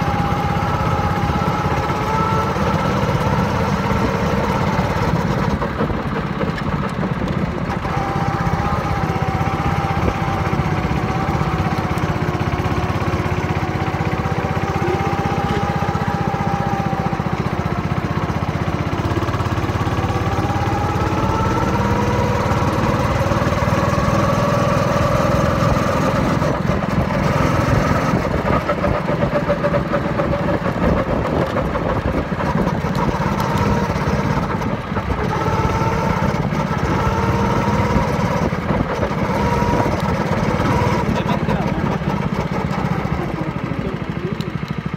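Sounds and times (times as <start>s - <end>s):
motorcycle engine running: 0.0s - 44.9s.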